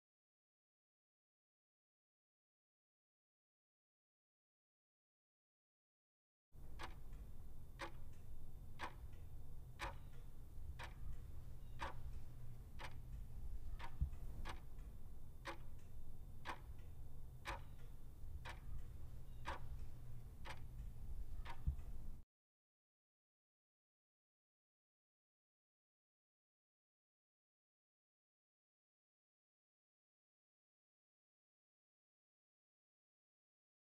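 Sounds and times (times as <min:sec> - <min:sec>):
clock ticking: 0:06.6 - 0:22.2
steady low hum: 0:06.6 - 0:22.2.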